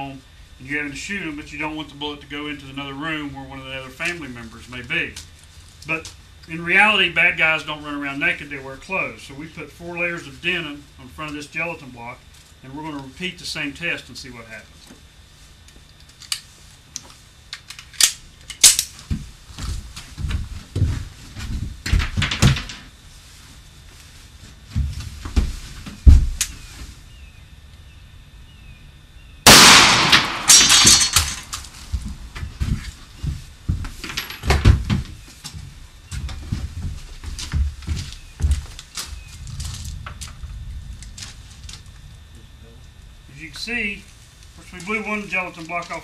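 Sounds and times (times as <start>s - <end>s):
gunshot: 29.5s - 30.9s.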